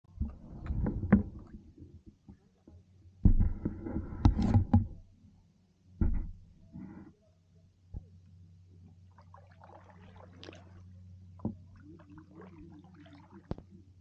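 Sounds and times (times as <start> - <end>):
camera handling knocks and thuds: 6.0 - 6.4.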